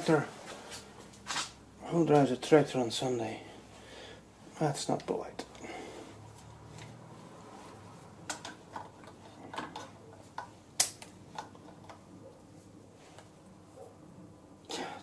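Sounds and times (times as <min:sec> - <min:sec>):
pliers clicking and tapping metal: 0:09.5 - 0:12.0.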